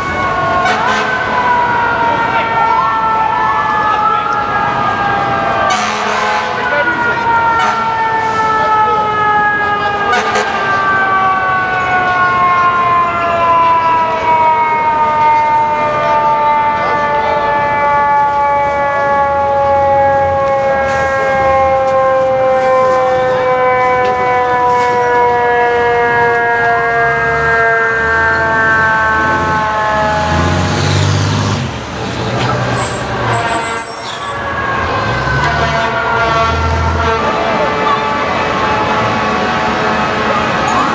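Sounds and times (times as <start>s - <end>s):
fire truck siren winding down: 0.0s - 40.9s
truck engine rumble: 18.4s - 40.9s.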